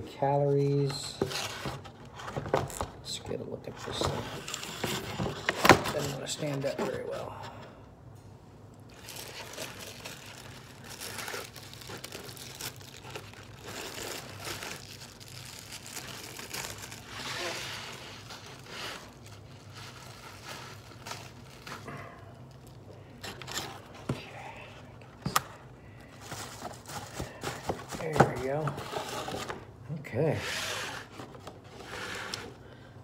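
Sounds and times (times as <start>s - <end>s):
plastic wrapping crinkling: 8.8s - 24.2s, 24.8s - 29.7s.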